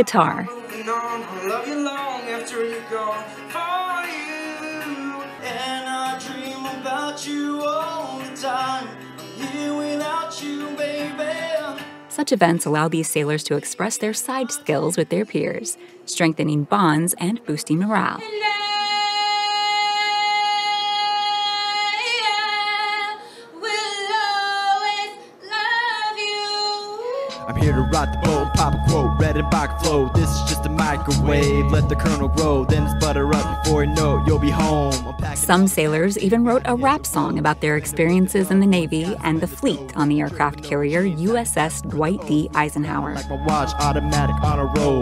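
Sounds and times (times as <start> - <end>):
woman singing: 0.0 - 0.9, 12.2 - 27.5, 35.4 - 43.2
acoustic guitar strumming: 0.0 - 15.7, 27.5 - 45.0
man singing: 0.5 - 11.8, 27.4 - 35.7, 43.1 - 45.0.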